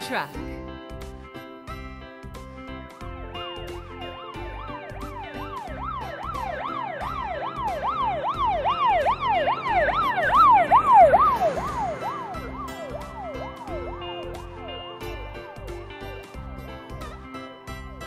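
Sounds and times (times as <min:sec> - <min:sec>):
emergency vehicle siren wailing: 0:04.0 - 0:17.9.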